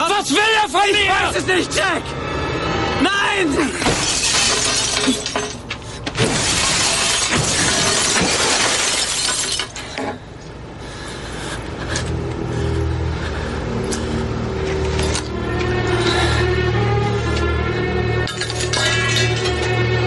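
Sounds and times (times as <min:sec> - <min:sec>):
falling glass shards: 0:03.8 - 0:05.6, 0:06.2 - 0:10.1, 0:18.3 - 0:19.8
glass shattering: 0:03.8 - 0:05.6, 0:06.2 - 0:10.1, 0:18.2 - 0:19.9
low sustained music: 0:11.2 - 0:20.0.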